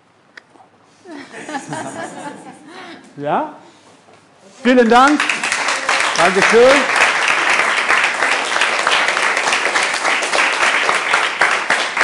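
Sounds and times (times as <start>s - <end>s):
people clapping: 4.7s - 12.0s.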